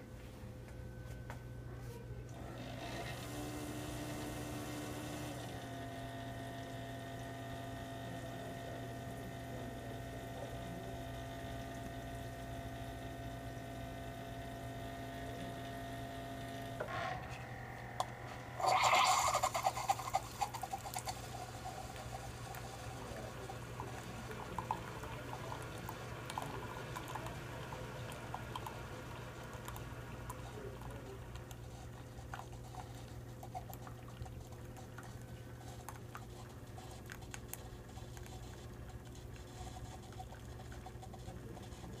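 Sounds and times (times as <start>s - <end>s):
coffee maker hum: 0.0s - 42.0s
coffee maker hissing and sputtering: 2.4s - 42.0s
coffee dripping into mug: 18.0s - 41.7s.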